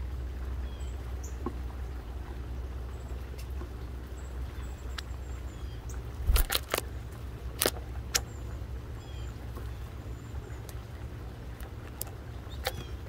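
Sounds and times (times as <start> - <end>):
bird pecking seeds on wood: 6.2 - 6.9
faint high bird calls: 8.2 - 10.8, 12.3 - 13.0.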